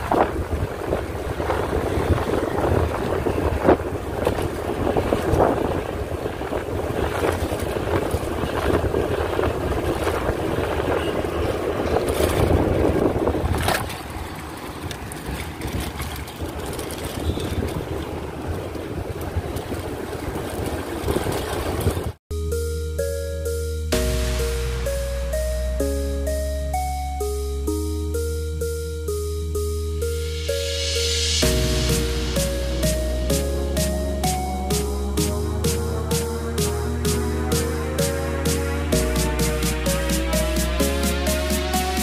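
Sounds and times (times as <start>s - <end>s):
wind rushing over microphone: 0.0s - 22.2s.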